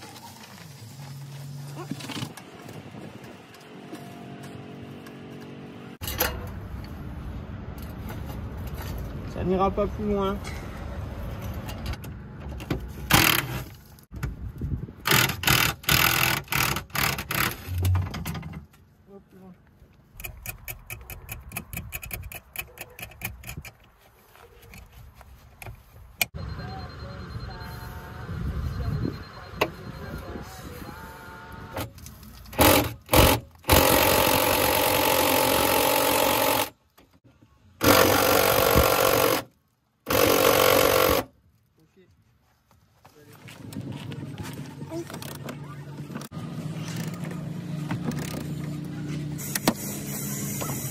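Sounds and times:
pneumatic air tool bursts: 15.1 - 17.8, 32.6 - 36.7, 37.8 - 39.5, 40.1 - 41.3, 49.4 - 50.9.

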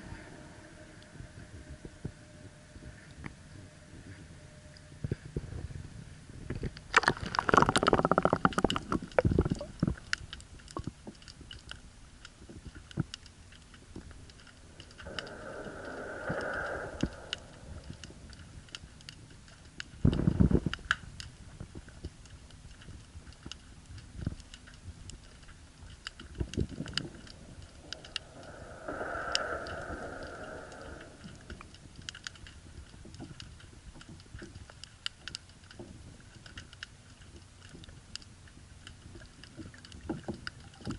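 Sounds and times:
underwater clicks and crackles: 0.0 - 40.9
rushing underwater noise: 6.5 - 10.1, 14.0 - 20.8, 26.1 - 33.4.

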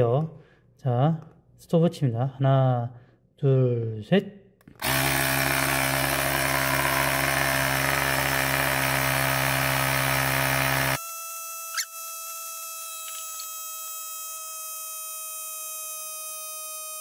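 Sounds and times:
tire inflator compressor running: 4.7 - 14.4.

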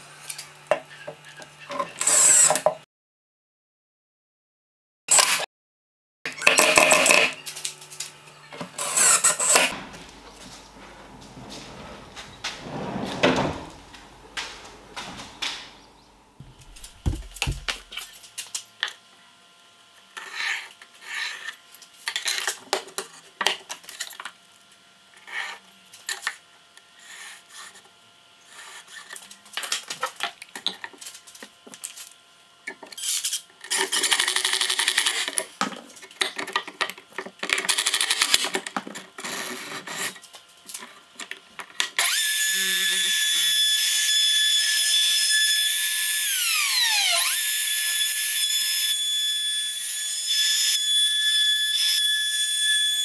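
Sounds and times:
router high whine: 42.0 - 53.0.

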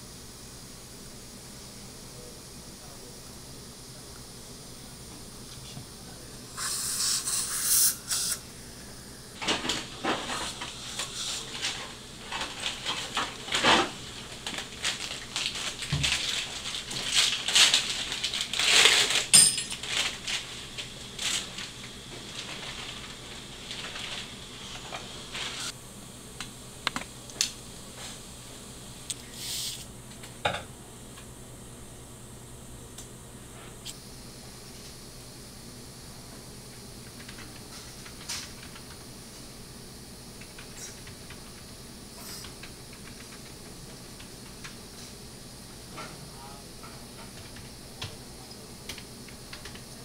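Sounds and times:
surgical suction hissing: 6.6 - 9.0, 29.3 - 29.9.

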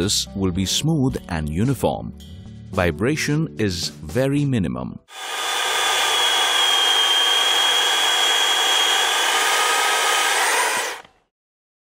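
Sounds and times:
electric chainsaw cutting wood: 5.1 - 11.2.

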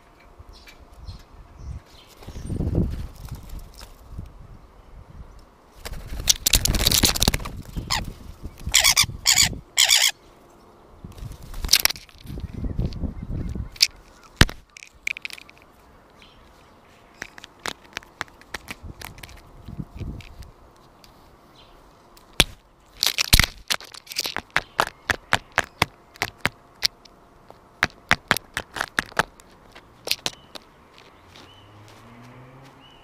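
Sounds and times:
wings buffeting camera: 5.8 - 9.4, 27.8 - 32.0.

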